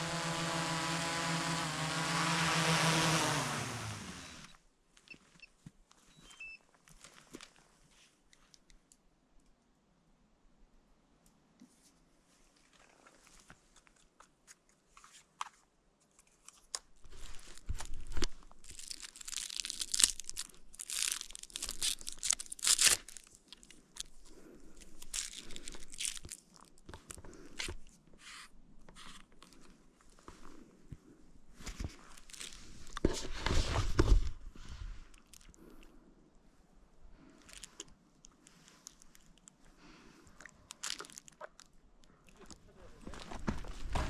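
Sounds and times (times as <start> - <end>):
crunching crinkling and tearing: 16.2 - 27.9, 32.0 - 33.0, 35.1 - 35.9, 37.4 - 39.6, 40.2 - 43.5.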